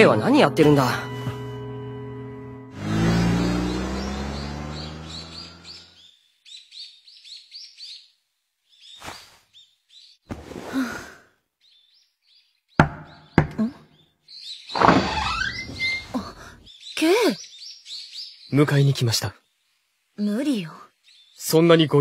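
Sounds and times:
birds chirping: 0.0s - 10.3s, 11.3s - 22.0s
held music note: 0.3s - 3.0s
sharp knocks: 12.8s - 13.6s.

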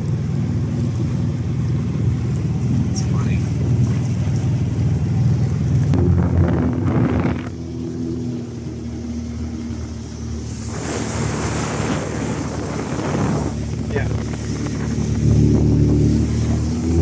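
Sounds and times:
boat engine humming: 0.0s - 17.0s
water rushing along hull: 0.0s - 17.0s
wind on microphone: 5.8s - 8.9s, 9.7s - 17.0s.

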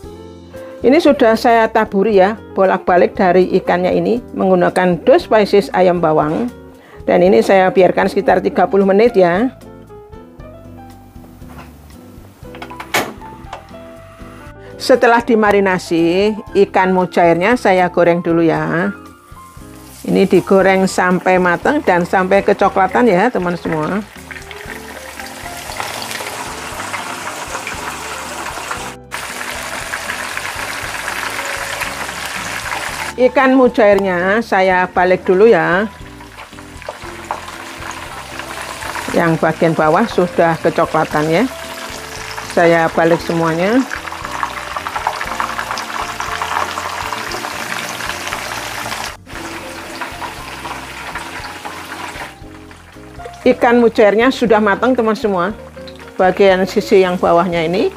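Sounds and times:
faint background music: 0.0s - 57.9s
fish deep-frying in oil: 19.5s - 33.2s, 35.2s - 57.9s.

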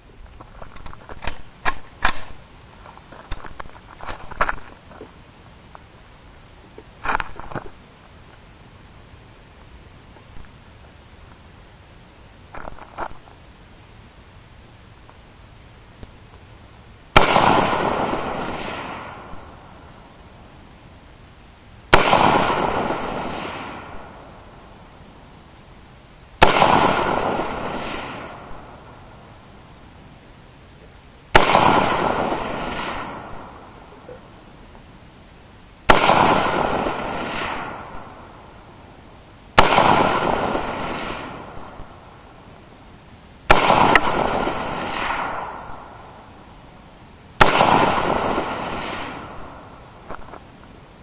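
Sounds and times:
rifle shots with echo: 1.2s - 2.4s, 17.2s - 19.9s, 21.9s - 24.4s, 26.4s - 28.9s, 31.3s - 33.9s, 35.9s - 38.4s, 39.6s - 42.2s, 43.5s - 46.3s, 47.4s - 49.8s.

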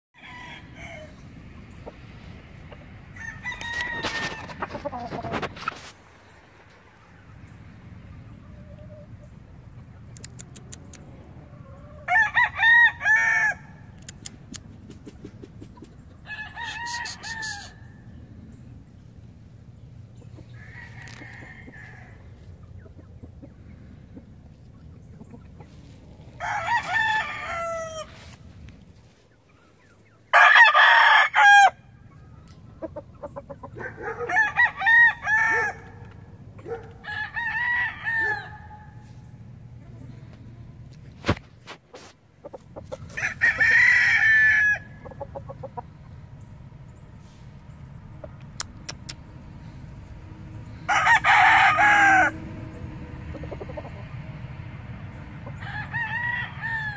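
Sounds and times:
rooster crowing and clucking: 0.2s - 7.5s, 10.4s - 14.2s, 16.0s - 18.6s, 20.0s - 28.7s, 30.2s - 40.6s, 41.3s - 56.9s.

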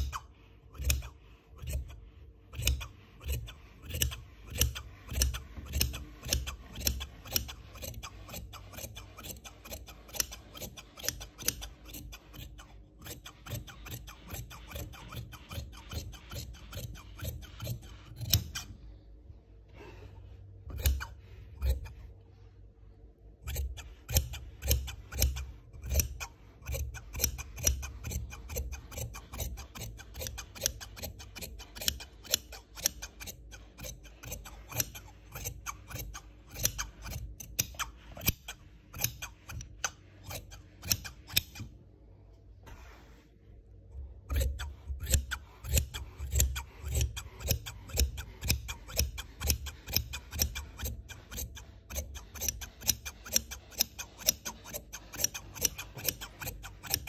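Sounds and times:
scissors snipping through cloth: 0.0s - 18.7s, 20.7s - 22.0s, 23.4s - 41.7s, 44.3s - 57.0s.

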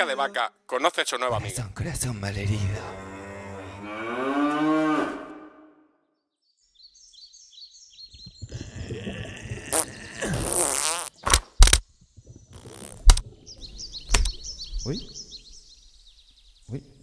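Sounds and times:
high bird chirps: 12.2s - 16.8s.

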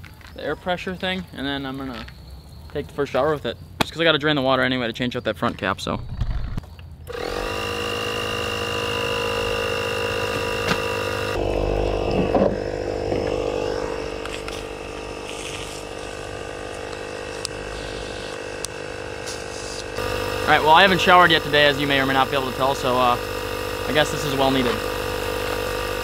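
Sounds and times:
air compressor running: 7.1s - 26.0s.

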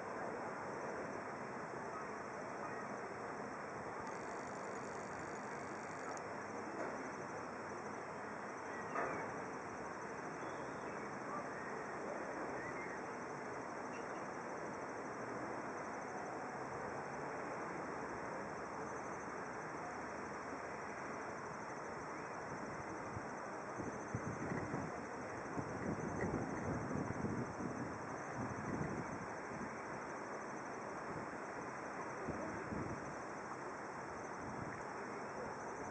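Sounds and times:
steady outdoor background noise: 0.0s - 35.9s
faint bird chirps: 1.9s - 3.0s, 8.6s - 9.3s, 10.4s - 13.1s, 13.9s - 14.3s.

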